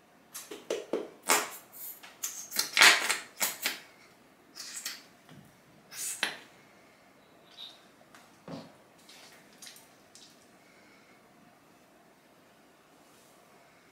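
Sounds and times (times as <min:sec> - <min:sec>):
squeeze bottle squirting: 0:01.2 - 0:03.8, 0:04.6 - 0:05.0, 0:05.9 - 0:06.4.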